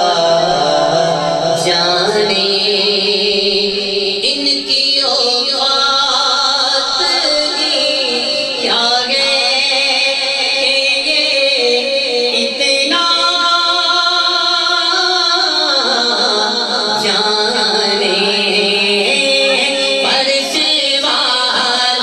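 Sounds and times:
man singing into a microphone: 0.0s - 22.0s.

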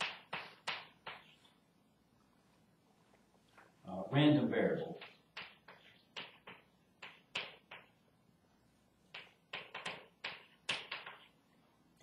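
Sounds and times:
chalk tapping and scratching: 0.0s - 1.6s, 4.9s - 8.0s, 9.1s - 11.4s.

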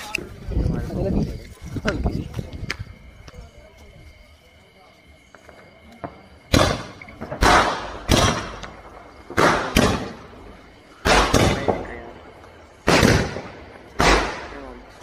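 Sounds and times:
fireworks bangs: 5.3s - 15.0s.

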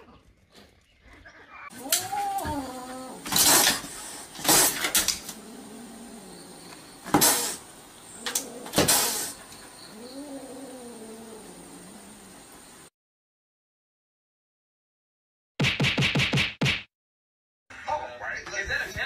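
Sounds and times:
cat growling: 1.7s - 12.5s
cat hissing: 1.7s - 12.6s.

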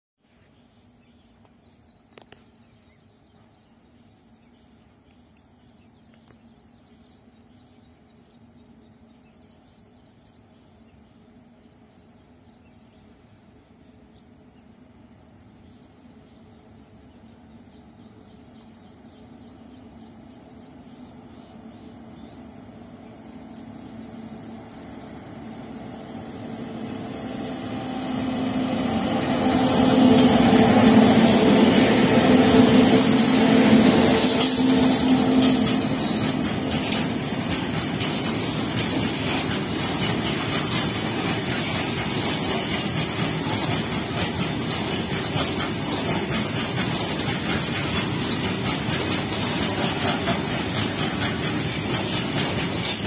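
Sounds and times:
crickets chirping: 0.2s - 53.0s
electric locomotive rumbling: 0.6s - 53.0s.

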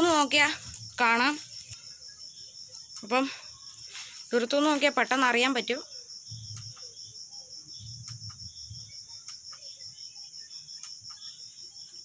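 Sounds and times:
crickets trilling: 0.0s - 12.0s
faint ticks: 6.3s - 7.0s, 8.0s - 9.8s, 10.8s - 11.4s.

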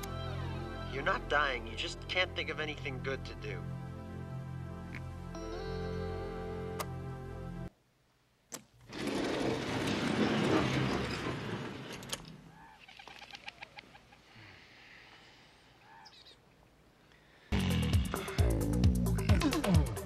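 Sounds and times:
birds chirping: 12.3s - 17.2s.

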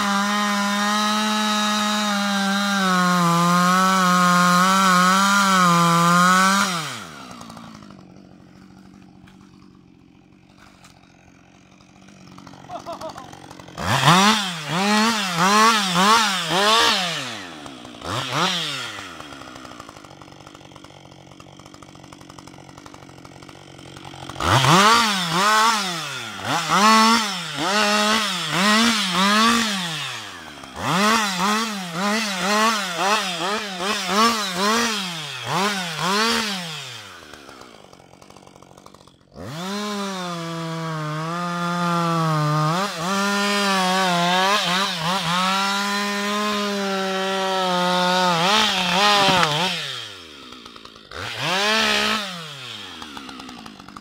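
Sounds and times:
chainsaw revving: 0.0s - 54.0s.

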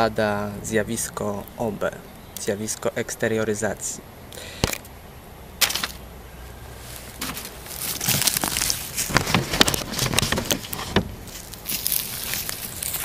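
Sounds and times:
paper rustling and crinkling: 6.9s - 13.0s
handling knocks: 7.1s - 11.4s.

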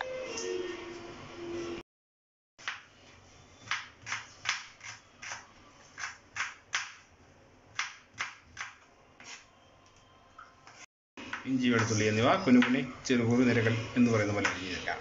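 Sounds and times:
knife chopping on cutting board: 3.6s - 7.1s, 7.7s - 9.4s.

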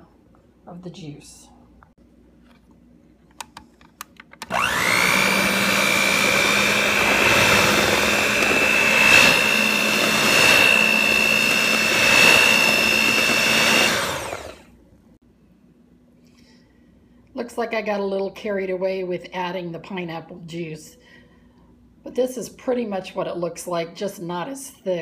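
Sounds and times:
electric hand mixer whining: 4.4s - 14.7s.

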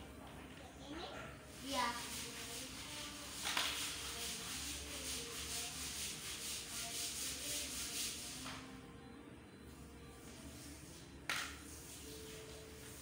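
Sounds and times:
stiff brush scrubbing tiled floor: 1.5s - 8.4s.

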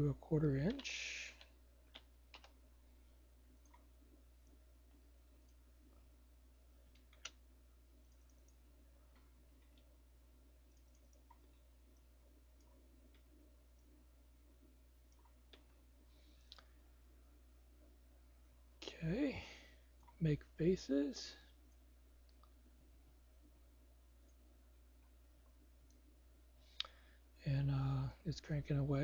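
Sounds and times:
steady low hum: 0.0s - 29.0s
computer mouse clicks: 0.7s - 2.6s, 3.6s - 4.6s, 6.9s - 7.4s, 8.0s - 9.9s, 10.7s - 13.9s.

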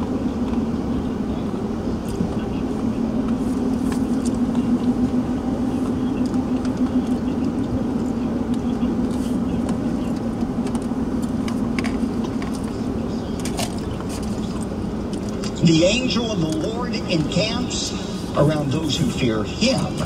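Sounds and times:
car engine and tyre drone: 0.0s - 20.0s.

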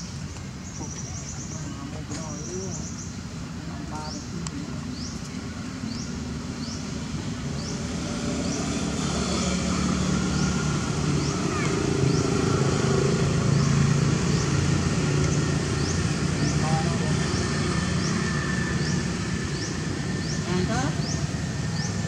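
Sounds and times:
vehicle engine droning: 3.8s - 22.0s.

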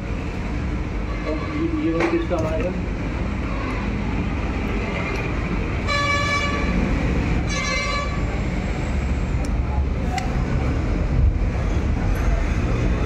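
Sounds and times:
passing traffic rumble: 0.0s - 13.0s
vehicle horn honking: 5.9s - 6.7s, 7.5s - 8.2s.

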